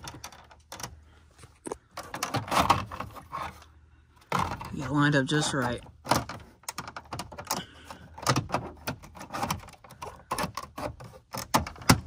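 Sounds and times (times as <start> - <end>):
light plastic scraping: 0.0 - 12.0
plastic trim clicks and knocks: 6.0 - 12.0.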